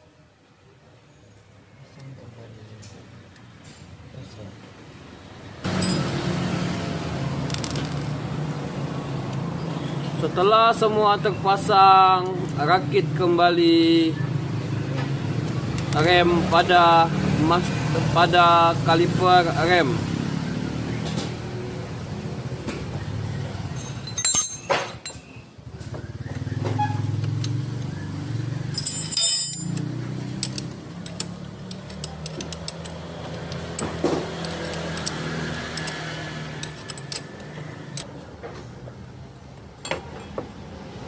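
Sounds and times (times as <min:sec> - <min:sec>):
metal parts clicking and clinking: 0:07.5 - 0:08.2, 0:23.7 - 0:25.4, 0:28.7 - 0:38.1.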